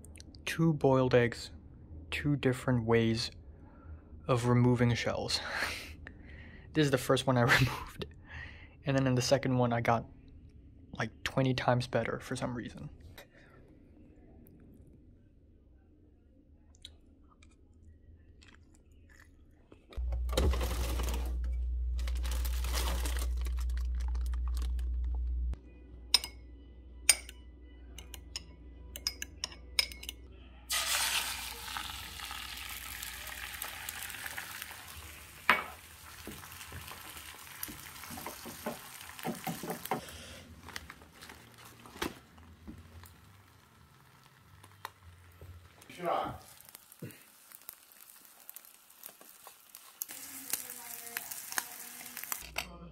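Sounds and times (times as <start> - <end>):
loud low hum: 20.0 - 25.8
eggs frying in a pan: 30.7 - 52.4.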